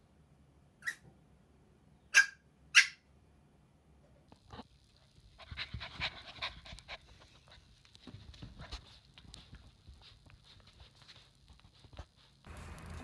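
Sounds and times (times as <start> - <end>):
small dog yipping: 0.8 - 1.1, 2.1 - 3.0.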